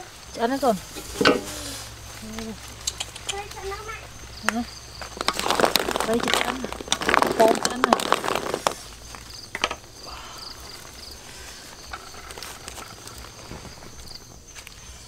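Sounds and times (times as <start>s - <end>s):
insects chirping: 0.0s - 15.0s
sharp clicks: 2.8s - 3.6s.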